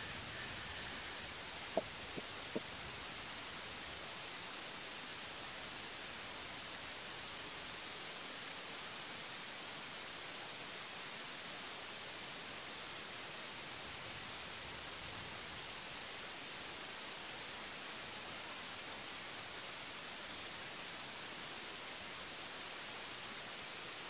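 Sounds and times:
faint ticks: 0:00.0 - 0:02.8
steady hiss: 0:00.0 - 0:24.0.

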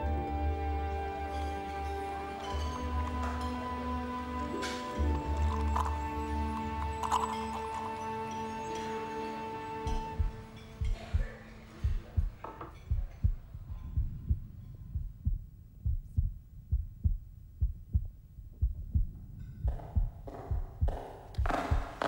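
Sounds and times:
heartbeat thumps: 0:09.8 - 0:22.0.

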